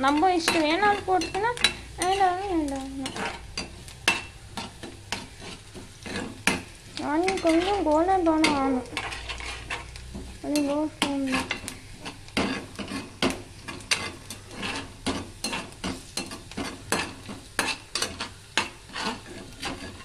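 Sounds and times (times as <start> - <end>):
onions sizzling in oil: 0.0 - 20.0
spatula scraping metal pan: 0.0 - 20.0.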